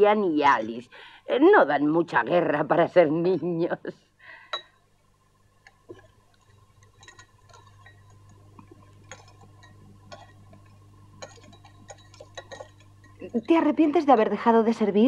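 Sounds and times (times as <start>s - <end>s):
low steady hum: 0.0s - 15.0s
cutlery clinking on plates: 9.1s - 10.6s, 11.2s - 13.2s.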